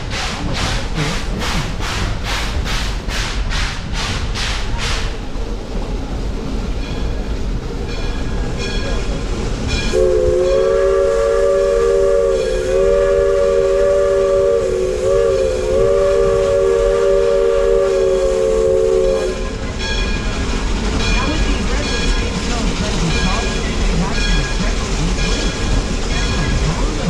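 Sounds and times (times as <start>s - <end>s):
rumble of moving train: 0.0s - 27.0s
steam locomotive whistle: 9.9s - 19.6s.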